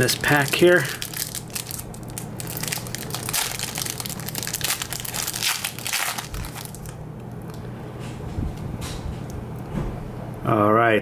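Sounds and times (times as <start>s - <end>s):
plastic wrapper tearing and crinkling: 0.0s - 7.6s.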